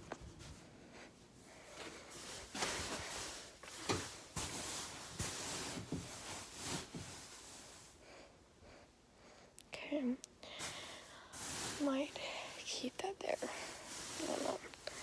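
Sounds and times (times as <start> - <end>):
blankets rustling: 0.0 - 8.0, 10.6 - 15.0.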